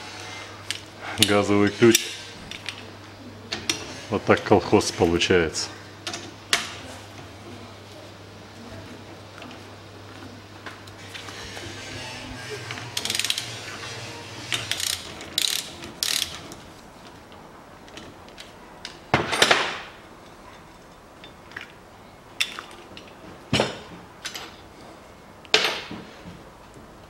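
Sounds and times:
ratchet clicking: 0:13.0 - 0:13.6, 0:14.5 - 0:16.5.

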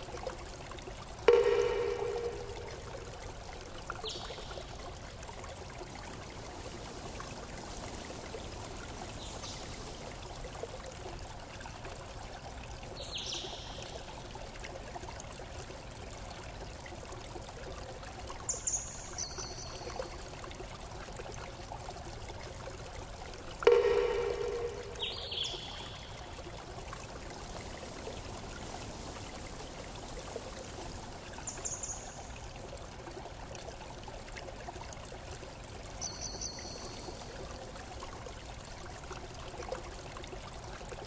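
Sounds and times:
flowing water: 0:00.0 - 0:41.0
ringing chime-like tone: 0:01.3 - 0:02.9, 0:23.7 - 0:25.3.

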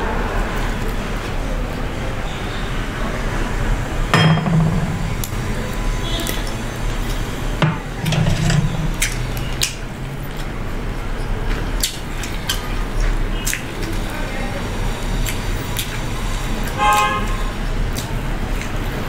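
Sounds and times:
steady low hum: 0:03.3 - 0:10.2
wet mouth clicks and smacks: 0:11.8 - 0:14.0, 0:15.2 - 0:16.0, 0:17.9 - 0:18.8
chewing crisp chicken: 0:15.0 - 0:19.0.

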